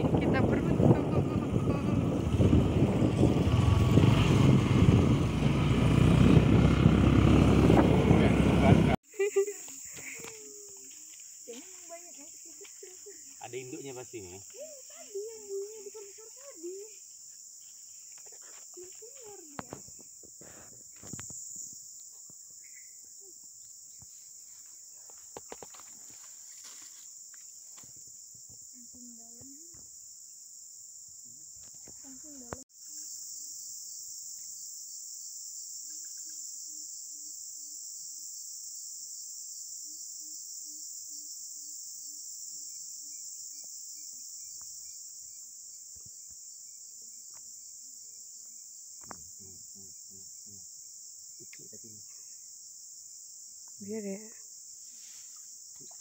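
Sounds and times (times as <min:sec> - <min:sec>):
insects droning: 0:00.0 - 0:56.0.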